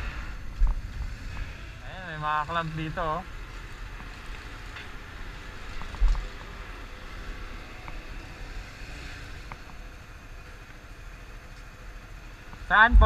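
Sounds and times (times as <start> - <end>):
motorcycle engine rumbling: 9.6 - 13.0.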